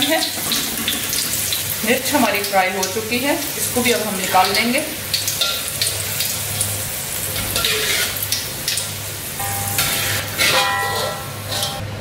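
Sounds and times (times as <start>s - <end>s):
chillies sizzling in hot oil: 0.0s - 11.8s
oil crackling and popping: 3.7s - 9.0s.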